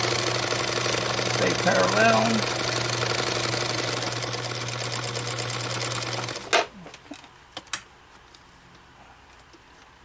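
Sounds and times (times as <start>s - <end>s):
sewing machine stitching: 0.0s - 6.7s.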